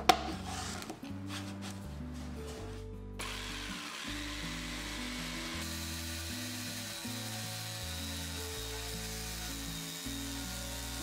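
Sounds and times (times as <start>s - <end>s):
background music: 0.0s - 11.0s
electric jigsaw running: 3.2s - 11.0s.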